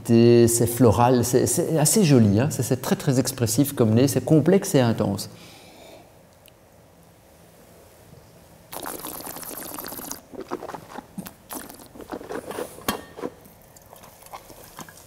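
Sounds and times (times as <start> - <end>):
person slurping wine: 8.7 - 12.9
wine swishing in mouth: 8.8 - 12.8.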